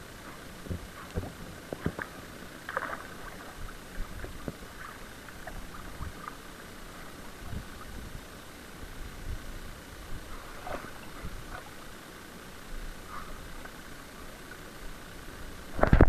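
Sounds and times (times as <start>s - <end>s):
kayak paddle splashing: 0.6s - 8.3s, 10.3s - 12.1s
water washing: 0.9s - 8.0s.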